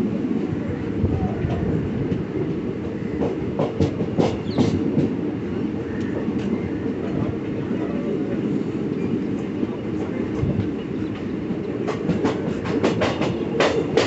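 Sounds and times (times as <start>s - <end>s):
train wheels rumbling on rails: 0.0s - 14.0s
clacks over rail joints: 1.4s - 7.6s, 9.4s - 14.0s.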